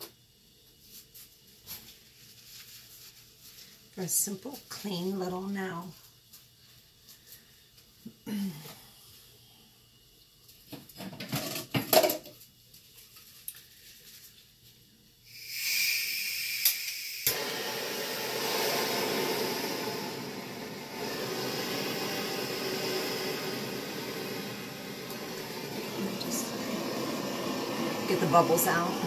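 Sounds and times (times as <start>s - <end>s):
flame rushing: 15.3s - 29.0s
torch hissing: 15.3s - 29.0s
torch click: 16.6s - 29.0s.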